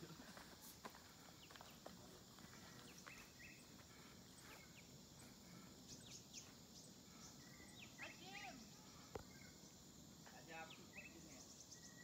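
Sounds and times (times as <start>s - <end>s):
bird chirps: 2.4s - 12.0s.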